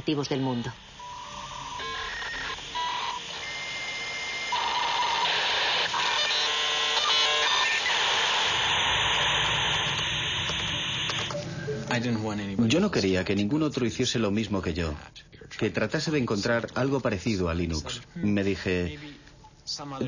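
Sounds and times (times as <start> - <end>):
dial-up modem connecting: 0.0 - 13.4.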